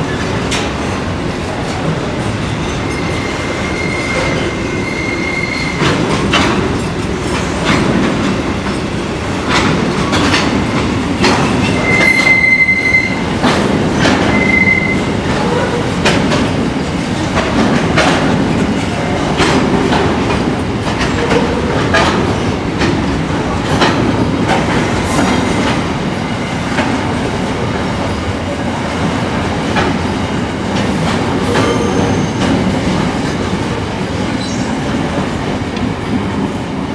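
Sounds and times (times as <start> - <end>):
train wagons rumbling: 0.0 - 36.9
high wheel squeal: 2.6 - 6.0, 11.6 - 13.3, 14.2 - 15.6, 31.5 - 32.6
wheels clacking over rail joints: 5.7 - 36.6.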